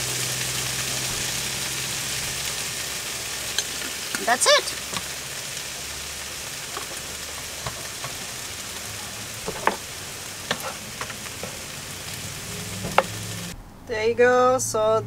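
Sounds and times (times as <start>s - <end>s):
vegetables sizzling in a frying pan: 0.0s - 13.6s
wooden spatula knocking: 9.4s - 9.8s, 12.8s - 13.2s.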